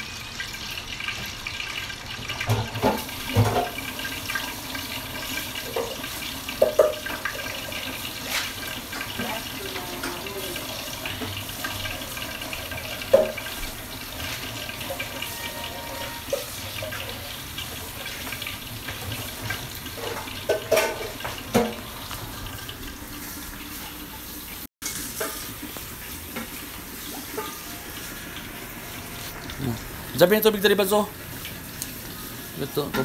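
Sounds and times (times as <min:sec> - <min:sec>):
frying pan rinsed under tap: 0:00.0 - 0:33.0
dishes knocking and clattering: 0:02.3 - 0:03.8, 0:05.7 - 0:07.5, 0:13.0 - 0:13.7, 0:18.8 - 0:21.9, 0:27.2 - 0:27.6
tap running into sink: 0:18.9 - 0:22.3.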